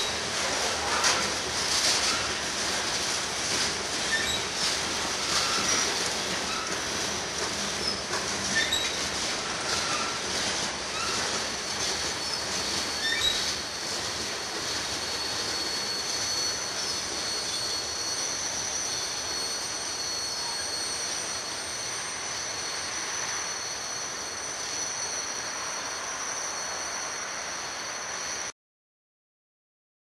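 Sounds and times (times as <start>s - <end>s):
high wheel squeal: 0.0s - 28.5s
train cars rolling on rails: 0.0s - 28.5s.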